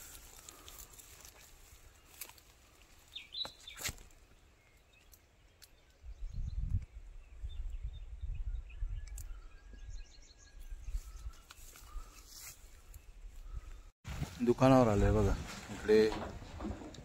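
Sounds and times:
faint bird chirps: 0:04.6 - 0:13.9.

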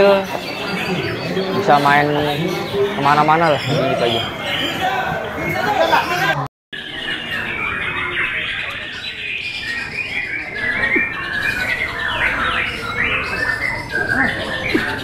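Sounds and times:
birds singing chirps and whistles: 0:00.0 - 0:15.0.

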